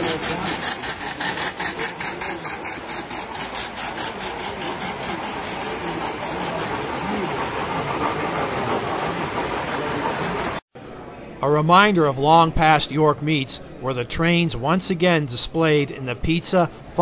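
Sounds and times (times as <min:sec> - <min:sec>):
toy train wheels clicking: 0:00.0 - 0:10.6.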